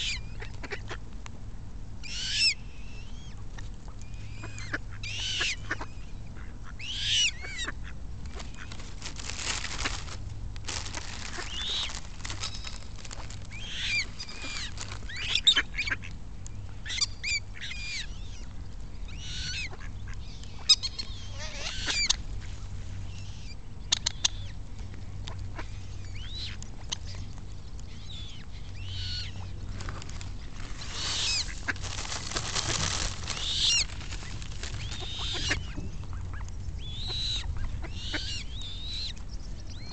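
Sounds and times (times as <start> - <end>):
ducks quacking: 4.3 - 16.1, 30.1 - 36.4.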